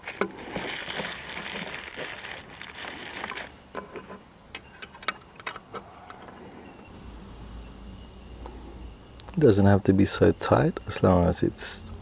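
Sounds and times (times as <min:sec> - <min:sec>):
paper packaging rustling: 0:00.0 - 0:04.2.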